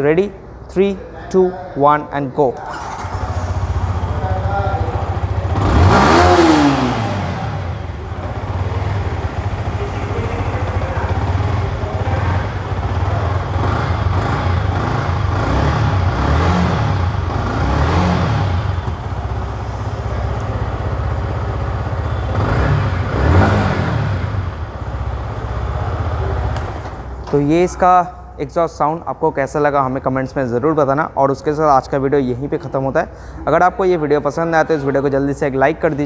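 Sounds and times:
motorcycle engine idling and revving: 0:02.7 - 0:27.4.

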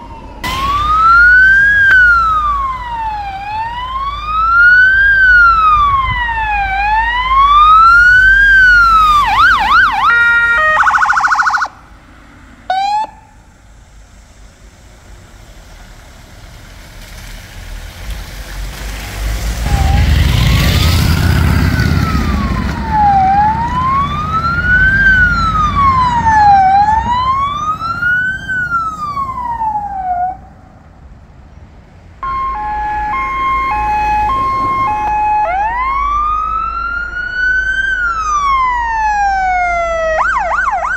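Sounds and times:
two-tone hi-lo siren: 0:00.0 - 0:11.8, 0:12.7 - 0:13.4, 0:19.7 - 0:30.5, 0:32.2 - 0:40.9
siren yelp: 0:00.0 - 0:11.9, 0:12.7 - 0:13.4, 0:19.7 - 0:30.5, 0:32.2 - 0:40.9
emergency siren wailing: 0:00.0 - 0:12.0, 0:12.7 - 0:13.4, 0:19.6 - 0:30.7, 0:32.2 - 0:40.9
road noise: 0:00.0 - 0:40.9
vehicle passing close: 0:00.0 - 0:40.9.

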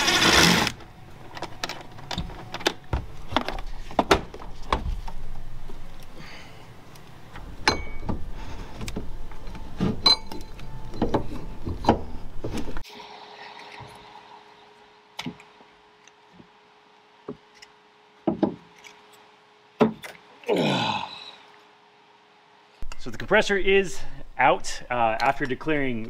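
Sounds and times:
power tool motor whirring: 0:00.0 - 0:00.8.

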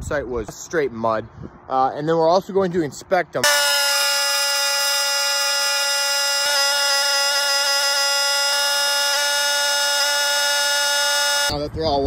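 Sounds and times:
pressure washer whine: 0:03.4 - 0:11.5.

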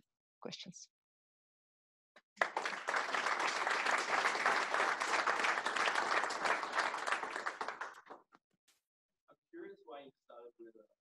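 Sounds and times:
audience clapping: 0:02.2 - 0:08.4.

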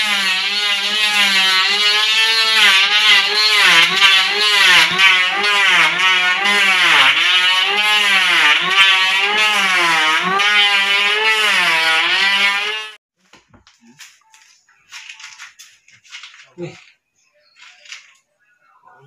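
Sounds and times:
electric planer shaving wood: 0:00.0 - 0:13.0.

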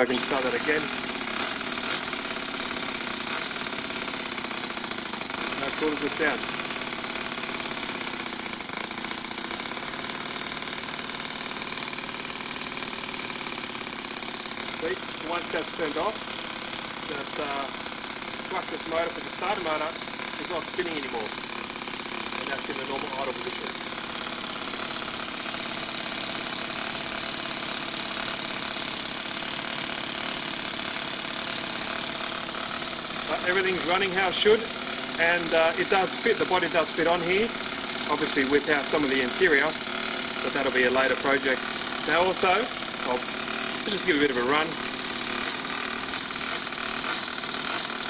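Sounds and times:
model engine idling: 0:00.0 - 0:48.0.

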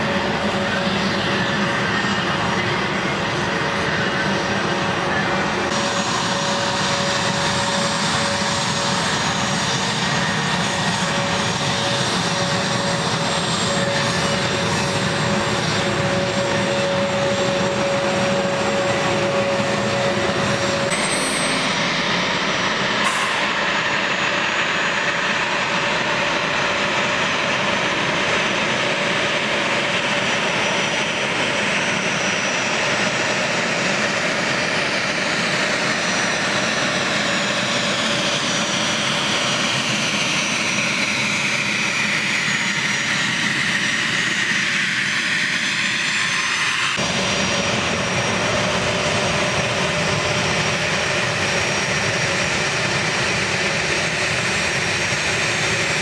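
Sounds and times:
high turbine whine: 0:00.0 - 0:56.0
jet engines running: 0:00.0 - 0:56.0.

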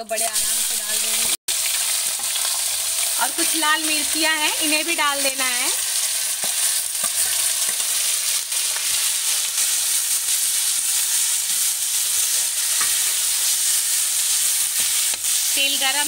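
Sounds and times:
onions sizzling in hot oil: 0:00.0 - 0:16.0
spoon scraping and tapping pan: 0:12.4 - 0:13.4.

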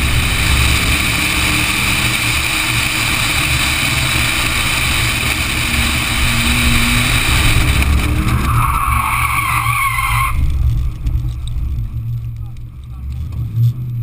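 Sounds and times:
race car engine running hard: 0:00.0 - 0:09.7
wind rush: 0:00.0 - 0:13.2
tyres squealing: 0:08.0 - 0:10.5.

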